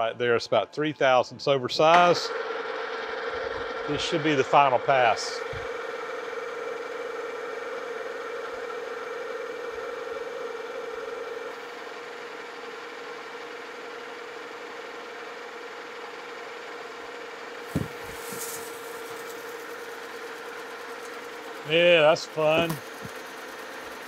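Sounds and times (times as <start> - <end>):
metal lathe whining: 2.3 - 16.3
cutting tool hiss: 17.7 - 24.0.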